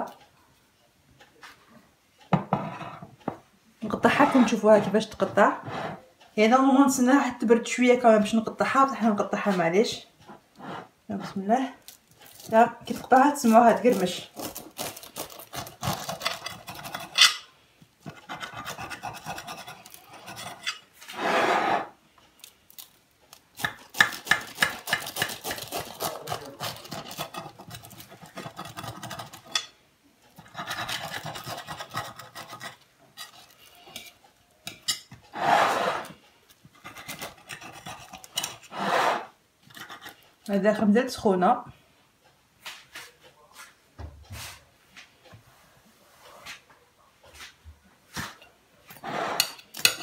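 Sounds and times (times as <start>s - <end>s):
knife sawing through crisp pastry: 4.1s - 4.7s, 12.2s - 17.4s, 18.0s - 21.9s, 23.6s - 29.6s, 30.4s - 34.2s, 35.3s - 36.2s, 36.8s - 40.3s, 49.0s - 50.0s.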